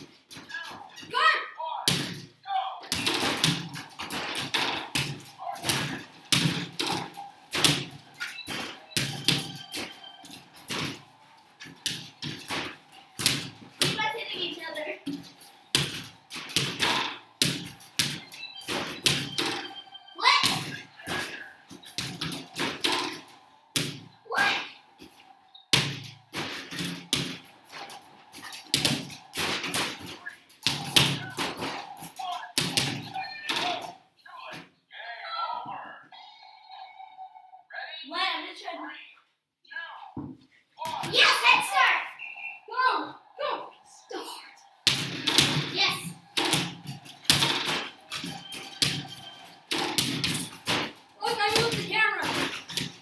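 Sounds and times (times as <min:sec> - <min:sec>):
basketballs hitting backboard and rim: 0:00.0 - 0:01.2, 0:01.8 - 0:34.6, 0:44.8 - 0:53.0.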